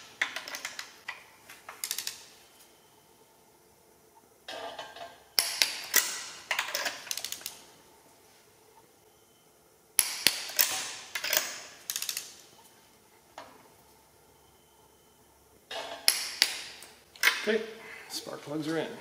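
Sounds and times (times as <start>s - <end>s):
torque wrench clicking: 10.0s - 12.3s.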